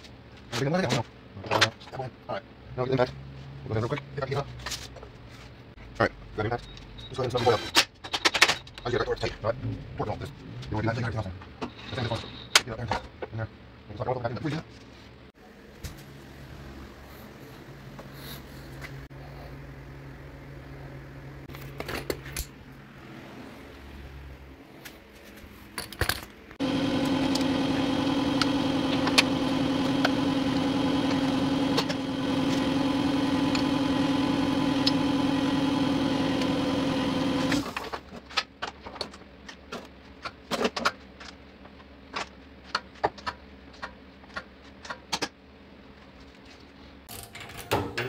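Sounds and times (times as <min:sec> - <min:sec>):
motor running: 0:26.6 - 0:37.8.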